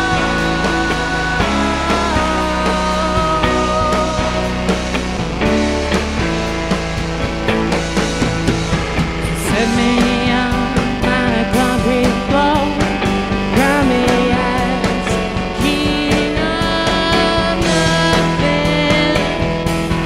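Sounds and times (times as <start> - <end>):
man singing: 0.0 - 5.1, 9.2 - 20.0
drums: 0.0 - 20.0
electric guitar: 0.0 - 20.0
keyboards: 0.0 - 20.0.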